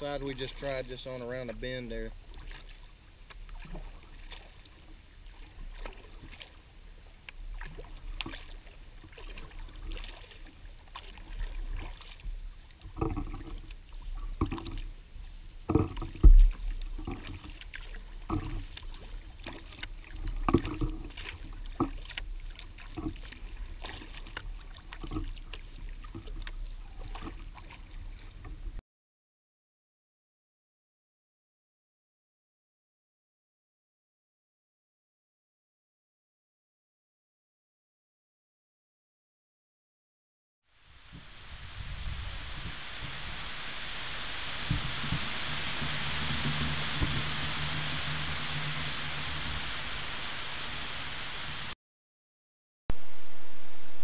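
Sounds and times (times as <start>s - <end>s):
kayak paddle splashing: 0.6s - 28.8s, 40.8s - 51.8s
low rumble: 40.9s - 51.8s, 52.9s - 54.0s.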